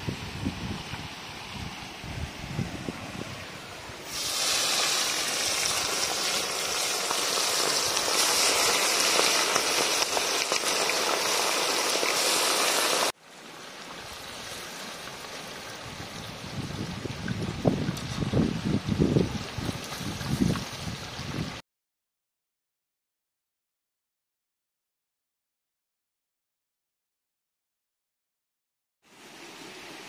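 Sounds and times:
stream running: 0.0 - 21.6, 29.0 - 30.0
fish deep-frying in hot oil: 4.0 - 13.2.

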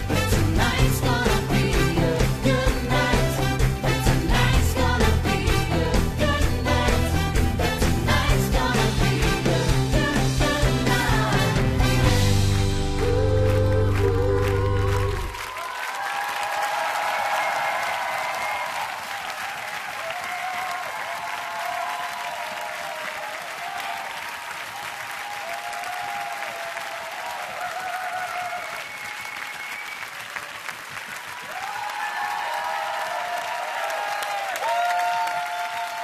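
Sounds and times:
audience applauding and cheering: 0.0 - 36.0
voices whooping: 25.3 - 29.8.

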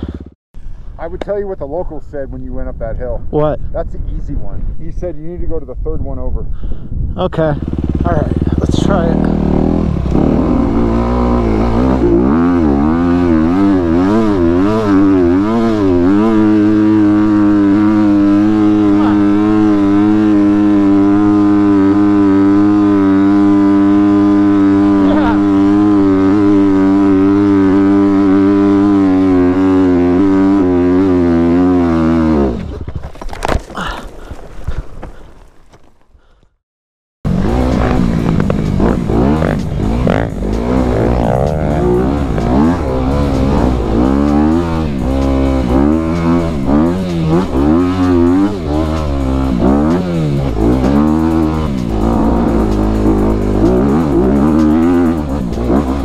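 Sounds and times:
dirt bike engine revving: 0.0 - 0.4, 7.4 - 32.8, 37.3 - 56.0.

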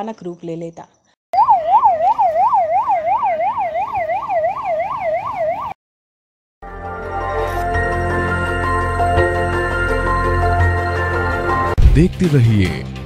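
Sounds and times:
ambulance siren sweeping: 1.4 - 5.8.

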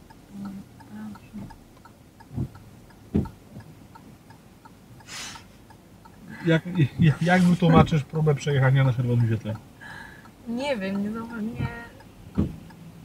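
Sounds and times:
turn signal ticking: 0.0 - 13.0
dull knocks: 2.3 - 3.7, 12.4 - 12.7
short hiss: 5.0 - 5.6.

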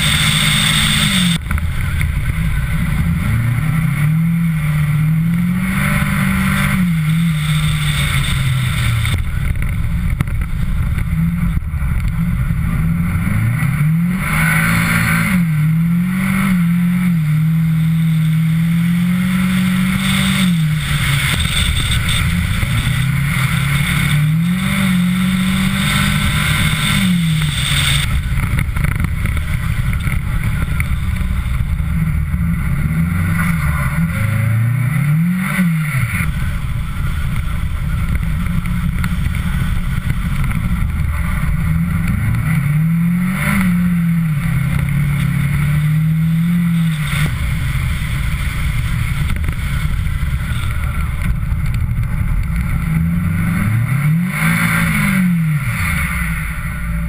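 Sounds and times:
car engine revving: 0.0 - 57.0
tyre and wind noise: 0.0 - 57.0.

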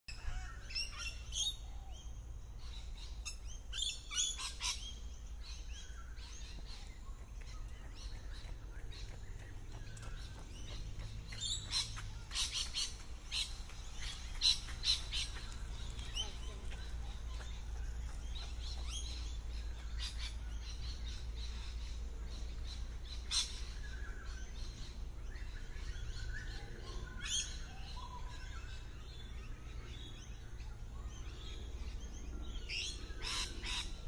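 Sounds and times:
steady low rumble: 1.2 - 34.0
lorikeets screeching: 32.5 - 34.0.

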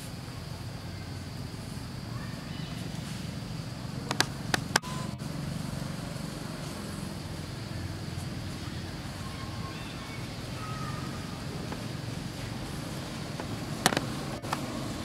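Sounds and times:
low outdoor rumble: 0.0 - 15.0
sharp clicks: 4.1 - 4.9.

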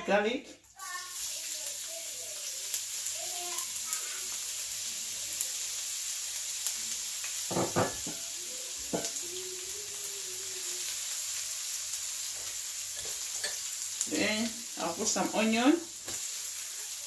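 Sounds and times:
garlic sizzling in oil: 0.5 - 17.0.

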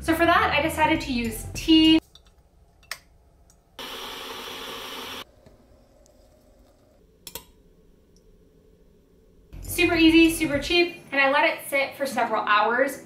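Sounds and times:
kettle heating water hiss: 3.8 - 6.2.

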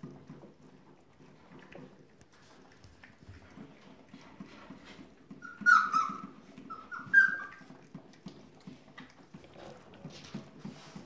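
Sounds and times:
puppies lapping food: 0.0 - 11.0
puppies whimpering: 5.3 - 7.8.

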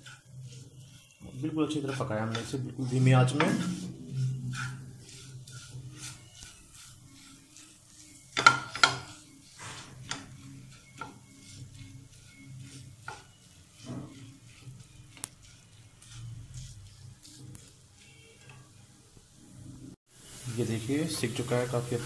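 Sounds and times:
faint sizzle: 0.0 - 22.0
spatula scraping frying pan: 0.0 - 22.0
spatula knocking against pan: 8.3 - 9.1.

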